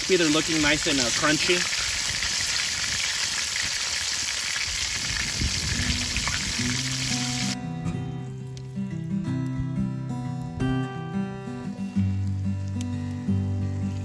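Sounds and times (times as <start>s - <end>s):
fish sizzling in hot oil: 0.0s - 7.6s
guitar music: 5.8s - 14.0s.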